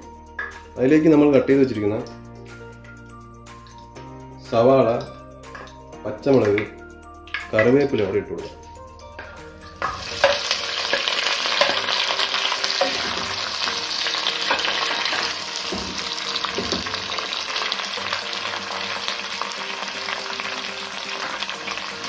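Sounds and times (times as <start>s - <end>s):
vegetables sizzling in hot oil: 9.8s - 22.0s.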